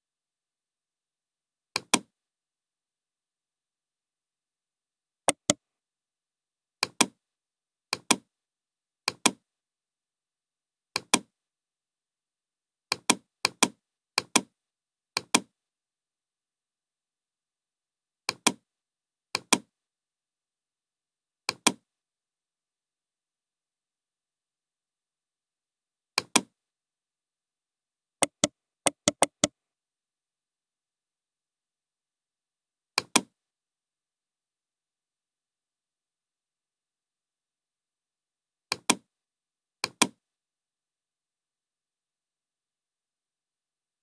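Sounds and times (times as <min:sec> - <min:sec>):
computer mouse button clicks: 0:05.3 - 0:05.6, 0:28.2 - 0:29.5.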